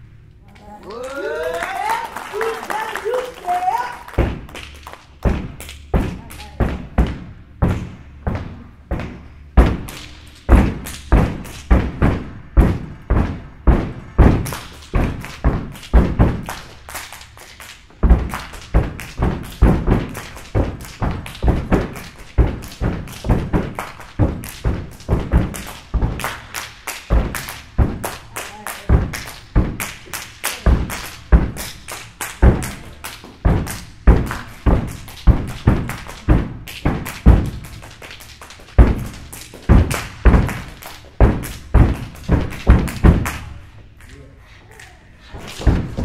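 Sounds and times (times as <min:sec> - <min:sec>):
hand claps: 0:00.5 - 0:06.8, 0:09.0 - 0:12.1, 0:14.3 - 0:46.0
feet stomping on a stage: 0:05.2 - 0:16.6, 0:17.9 - 0:26.3, 0:27.1 - 0:28.1, 0:28.8 - 0:30.0, 0:30.6 - 0:31.8, 0:32.4 - 0:37.9, 0:38.6 - 0:43.4, 0:45.4 - 0:46.0.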